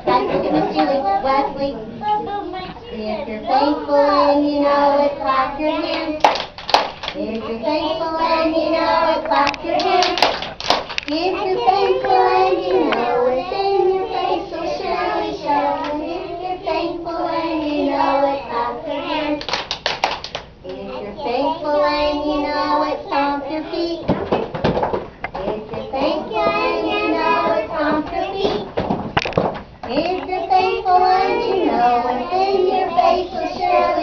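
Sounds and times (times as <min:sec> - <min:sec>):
children singing: 0:02.6 - 0:06.4, 0:07.2 - 0:10.5, 0:11.1 - 0:19.6, 0:20.7 - 0:24.2, 0:25.4 - 0:28.7, 0:29.9 - 0:34.0
hand claps: 0:06.2 - 0:07.2, 0:09.5 - 0:11.1, 0:19.4 - 0:20.5.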